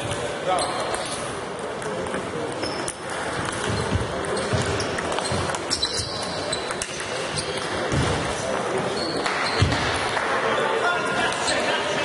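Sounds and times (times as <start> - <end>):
sports hall background noise: 0.0 - 12.0.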